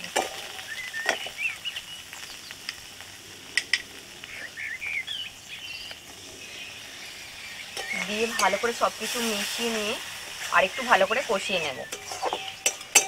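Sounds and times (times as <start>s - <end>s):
metal spatula stirring in wok: 0.0s - 1.4s, 7.6s - 13.0s
birds chirping: 0.0s - 13.0s
paste sizzling in oil: 0.0s - 13.0s.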